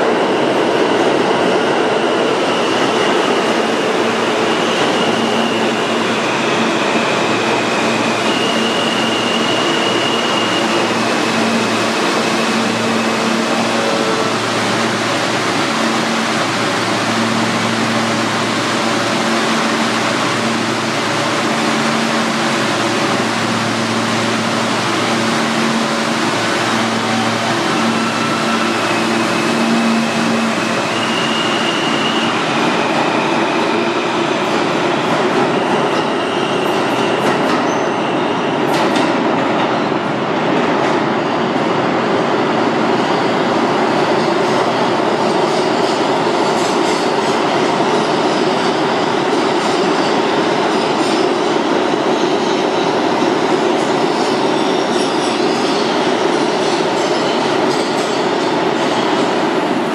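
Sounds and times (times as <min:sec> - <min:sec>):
subway train wheels rumbling: 0:00.0 - 0:59.9.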